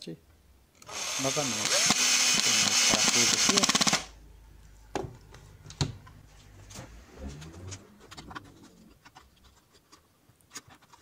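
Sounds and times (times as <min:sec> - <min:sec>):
electric screwdriver motor: 0:00.8 - 0:04.1.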